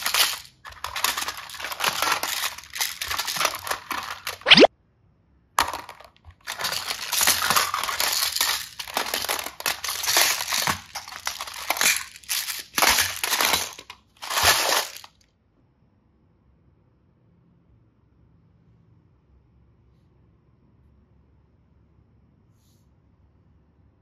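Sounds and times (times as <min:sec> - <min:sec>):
plastic containers clattering: 0:00.0 - 0:04.6, 0:05.6 - 0:15.1.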